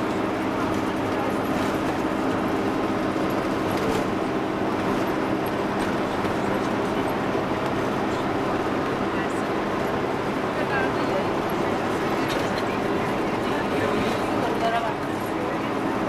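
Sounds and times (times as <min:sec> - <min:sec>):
car engine hum and road noise: 0:00.0 - 0:16.0.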